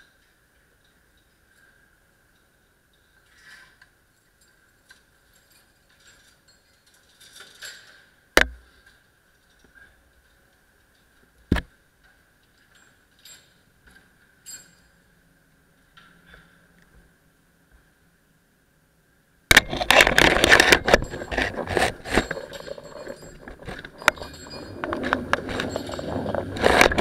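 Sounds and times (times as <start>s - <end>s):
metal fittings clinking: 19.5s - 27.0s.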